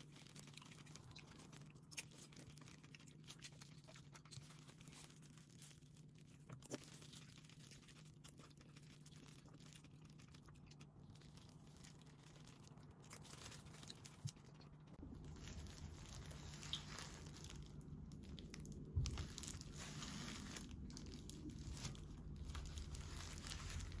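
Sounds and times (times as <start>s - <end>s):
plastic glove crinkling: 0.0s - 24.0s
low rumble: 14.0s - 24.0s.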